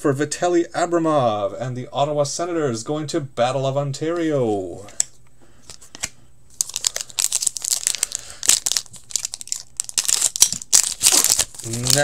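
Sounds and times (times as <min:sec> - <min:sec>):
foil wrapper crinkling and tearing: 0:06.6 - 0:12.0.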